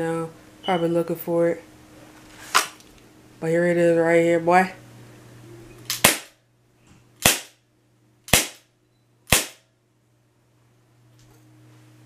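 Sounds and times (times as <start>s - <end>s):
airsoft pistol shots: 5.9s - 6.4s, 7.2s - 7.6s, 8.3s - 8.7s, 9.3s - 9.7s.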